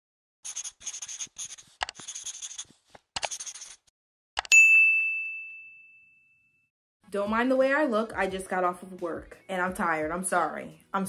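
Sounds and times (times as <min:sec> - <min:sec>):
pen scribbling: 0:00.4 - 0:03.9
bright bell ding: 0:04.5 - 0:06.4.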